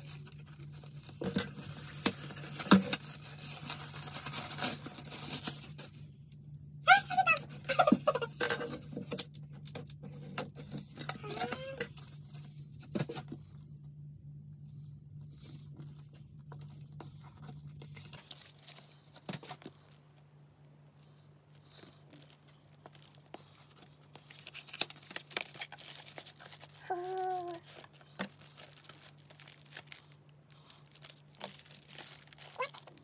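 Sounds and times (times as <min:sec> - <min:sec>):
cardboard tearing and crinkling: 0:00.0 - 0:05.8, 0:21.7 - 0:33.0
low steady hum: 0:00.0 - 0:33.0
paper rustling: 0:15.8 - 0:20.3, 0:21.0 - 0:33.0.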